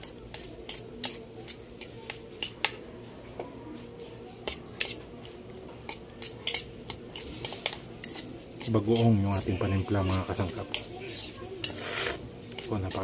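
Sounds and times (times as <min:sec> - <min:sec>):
fork stirring salad in bowl: 0:00.0 - 0:13.0.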